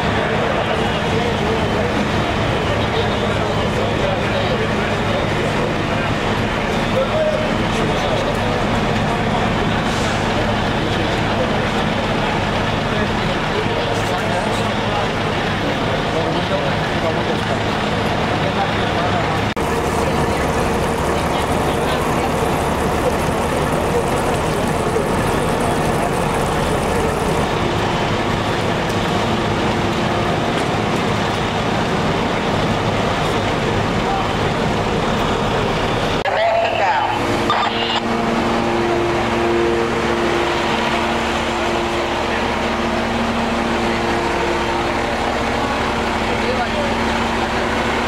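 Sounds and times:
fire engine running at high revs: 0.0 - 48.0
murmur of voices: 0.0 - 48.0
water spraying from leaking hose: 19.6 - 35.4.

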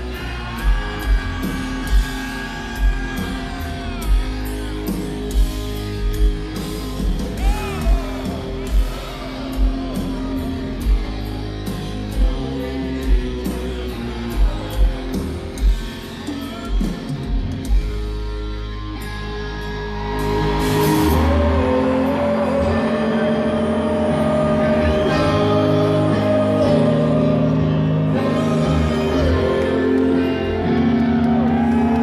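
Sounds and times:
distorted electric guitar: 0.0 - 32.0.

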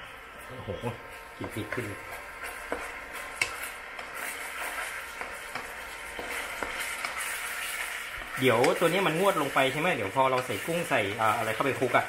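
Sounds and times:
sauce sizzling in oil: 0.0 - 12.0
spatula scraping a pan: 1.0 - 12.0
spatula clicking against pan: 2.7 - 4.1.

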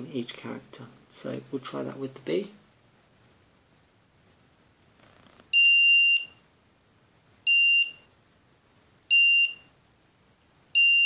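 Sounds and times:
buzzer beeping: 10.8 - 11.0.

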